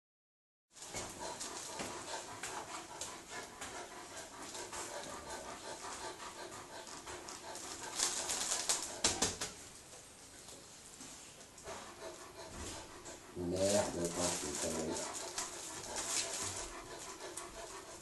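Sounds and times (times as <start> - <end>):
kitten scratching plastic bag: 7.6 - 9.3, 13.4 - 16.9
cat purring: 12.1 - 18.0.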